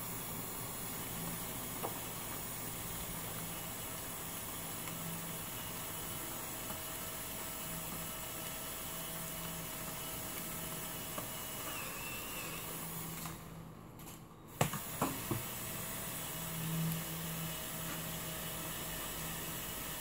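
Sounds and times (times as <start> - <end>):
light rain hissing: 0.0 - 13.3.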